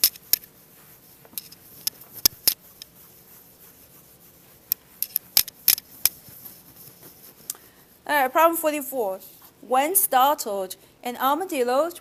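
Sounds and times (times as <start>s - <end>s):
eraser wiping whiteboard: 0.0s - 7.8s.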